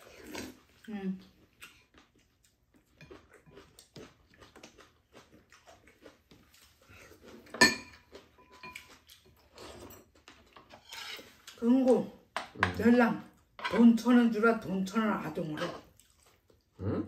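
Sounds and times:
slurping and chewing: 0:00.0 - 0:11.6, 0:15.5 - 0:16.9
utensil clinking bowl: 0:07.5 - 0:08.9.

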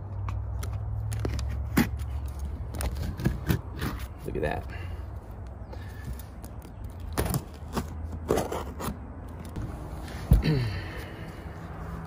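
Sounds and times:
knife scraping and cutting rubber: 0:01.2 - 0:04.3, 0:07.2 - 0:09.6.

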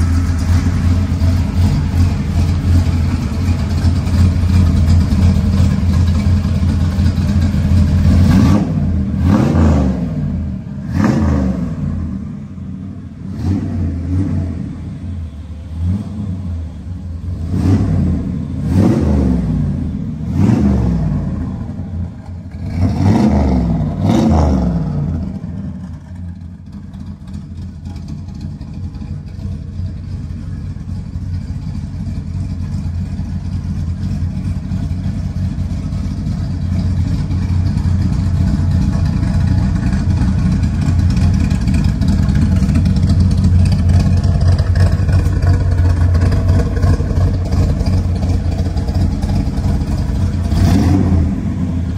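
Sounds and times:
engine revving: 0:00.0 - 0:12.4, 0:13.2 - 0:14.9, 0:15.8 - 0:21.9, 0:22.5 - 0:26.2, 0:36.9 - 0:51.9
engine idling: 0:00.0 - 0:51.9.

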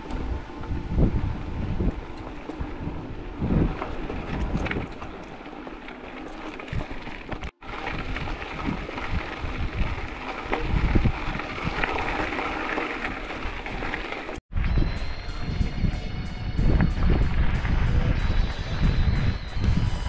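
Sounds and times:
steady rushing noise: 0:00.0 - 0:04.8, 0:14.6 - 0:20.0
wind buffeting microphone: 0:00.0 - 0:05.4, 0:06.7 - 0:12.3, 0:14.5 - 0:20.0.

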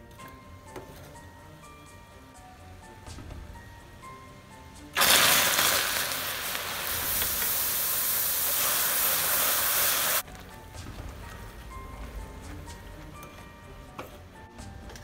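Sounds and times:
milk hissing and sizzling in pan: 0:05.0 - 0:10.3.

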